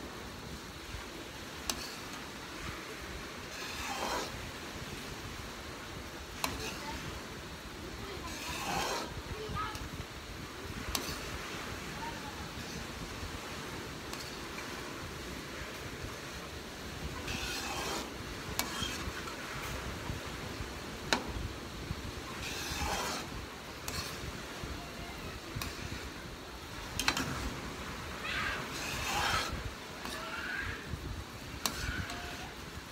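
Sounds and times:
metal spoon scraping a pan: 1.7s - 2.3s, 3.4s - 5.0s, 6.3s - 7.1s, 7.9s - 9.2s, 10.9s - 11.4s, 14.1s - 14.7s, 17.0s - 19.8s, 22.3s - 24.7s, 25.4s - 27.5s, 28.6s - 30.3s, 31.4s - 32.7s.

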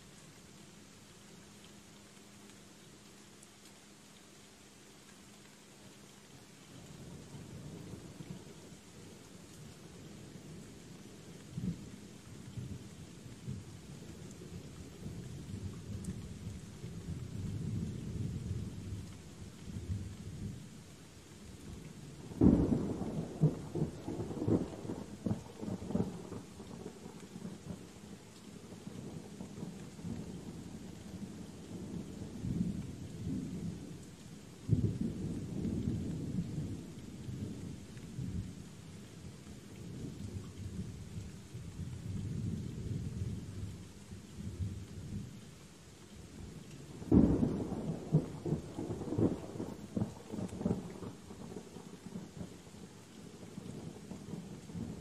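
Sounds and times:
steady rain: 0.0s - 55.0s
thunder rumbling: 46.9s - 52.5s.

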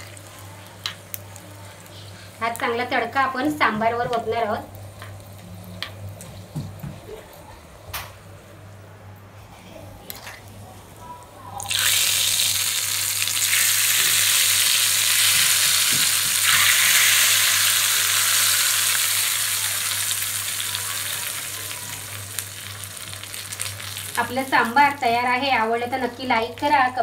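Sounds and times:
hot oil sizzling in liquid: 0.0s - 5.9s, 11.6s - 25.2s.

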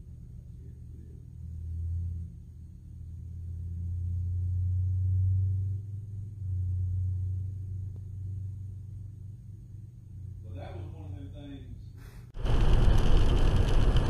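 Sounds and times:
car interior rumble: 12.4s - 14.0s.

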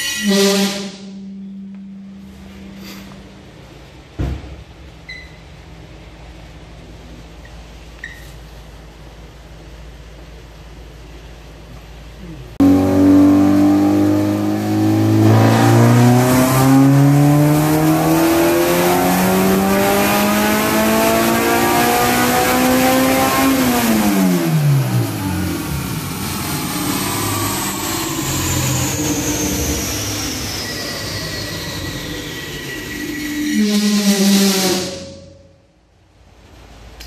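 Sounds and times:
thin whine falling in pitch: 0.0s - 3.7s, 12.6s - 19.8s, 24.3s - 35.7s
car engine revving: 12.2s - 35.4s.

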